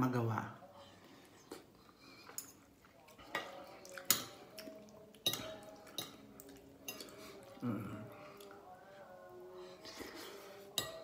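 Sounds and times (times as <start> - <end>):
cutlery clinking on ceramic plate: 5.2 - 6.2, 10.7 - 11.0.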